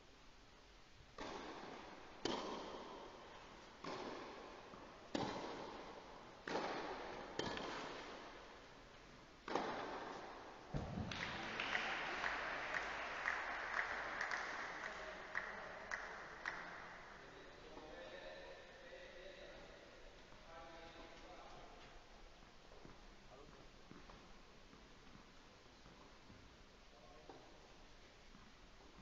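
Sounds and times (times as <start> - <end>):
tennis ball hit with rackets: 1.2 - 3.2, 3.8 - 8.3, 9.4 - 11.4
low thud: 10.7 - 11.2
crowd applause: 11.0 - 16.7.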